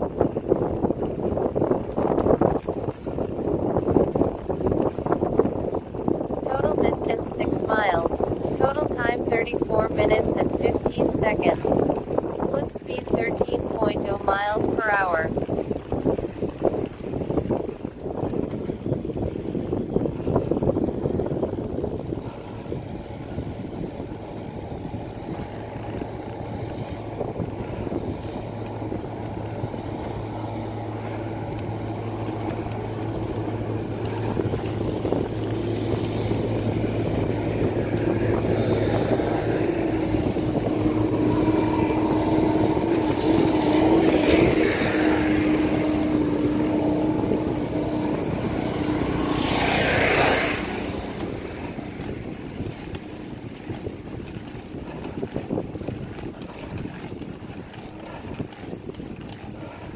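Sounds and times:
tyre and wind noise: 0.0s - 59.9s
steady tone: 6.4s - 15.3s.

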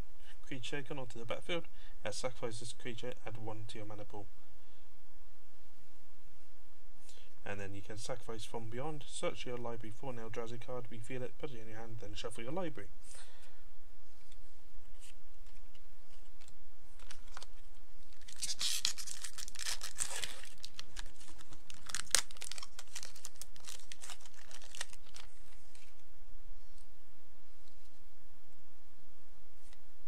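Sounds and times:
foil wrapper tearing and crinkling: 16.2s - 26.0s
sharp rip of foil: 18.1s - 25.8s.

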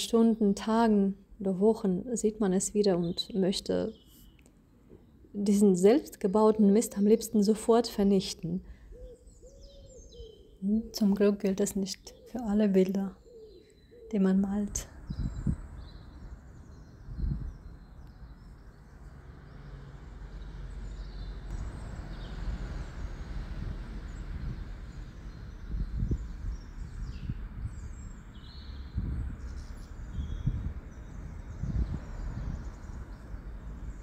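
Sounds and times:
faint bird chirps: 8.4s - 18.9s, 25.3s - 34.0s.

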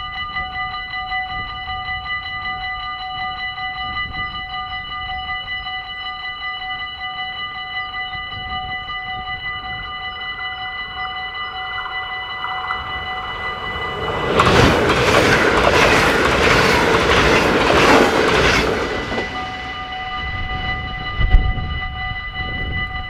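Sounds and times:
level crossing bells ringing: 0.0s - 23.0s
passenger train passing: 7.6s - 23.0s
train wheel clicks: 11.6s - 19.8s.

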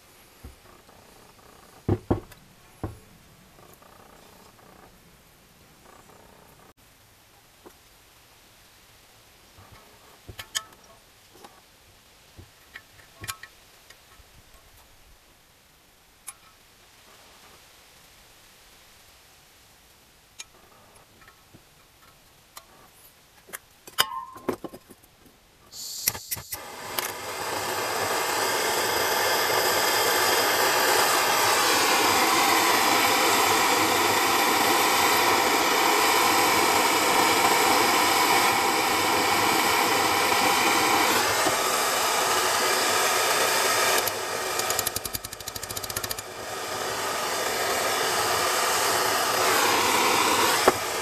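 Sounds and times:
motor-driven machine running: 26.5s - 51.0s.

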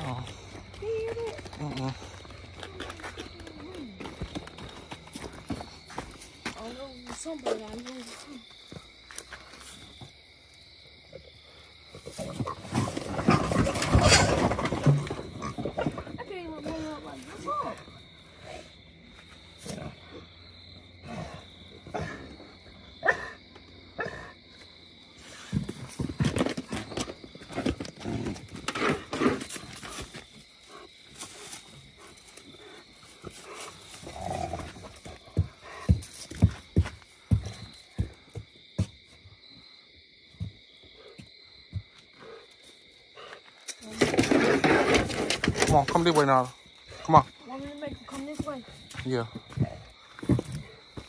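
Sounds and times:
animal growling: 0.0s - 0.7s, 33.4s - 35.2s
rough animal calls: 11.0s - 18.7s, 21.0s - 24.5s.

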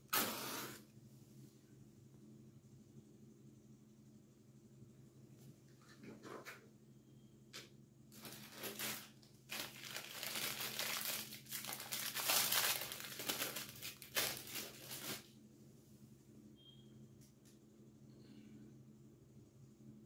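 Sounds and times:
rustling crinkling handling noise: 8.1s - 15.4s.

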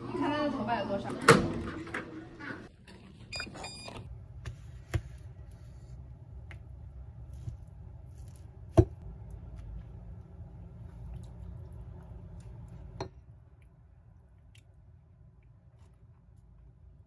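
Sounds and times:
steady low hum: 4.1s - 17.0s.

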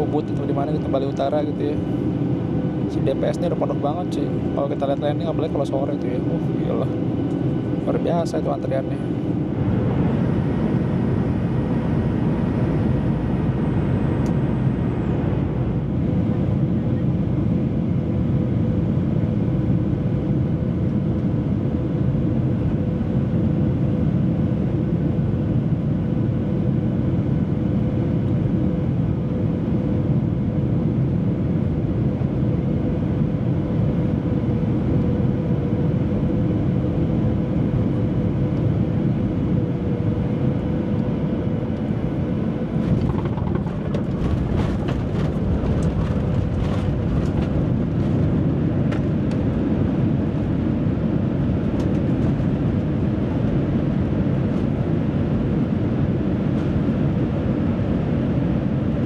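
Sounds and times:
airflow and engine noise: 0.0s - 59.0s
steady cabin hum: 38.1s - 50.2s.

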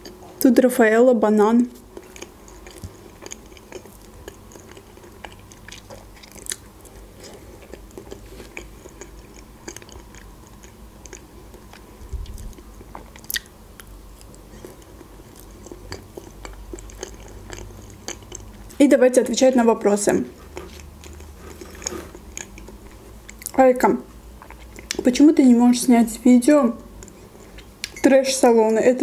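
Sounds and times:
person chewing soft food: 1.8s - 18.8s, 20.3s - 23.6s, 24.2s - 25.0s, 26.9s - 28.0s.

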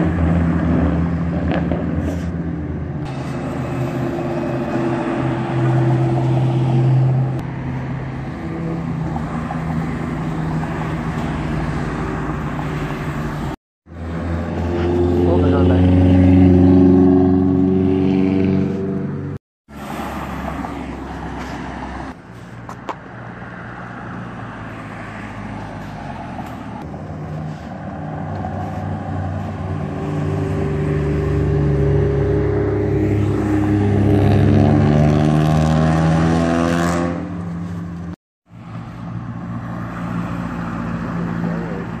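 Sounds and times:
cars driving past: 0.0s - 42.0s
engine accelerating hard: 13.9s - 19.4s, 29.8s - 37.3s.

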